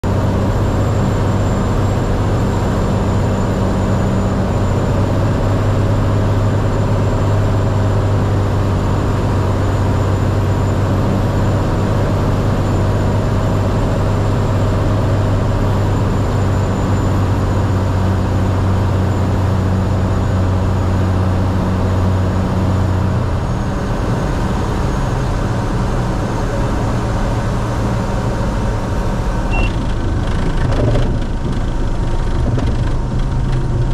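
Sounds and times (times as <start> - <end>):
propeller aircraft engine droning: 0.0 - 33.9.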